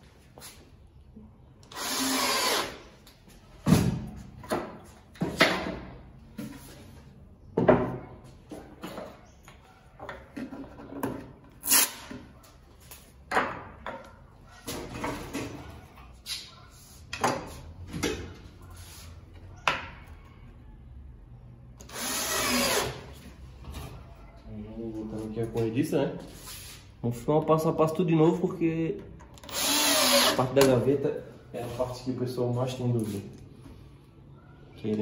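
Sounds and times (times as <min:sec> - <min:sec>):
cordless drill driving screw: 0:01.6 - 0:02.8, 0:21.8 - 0:23.0, 0:29.4 - 0:30.6.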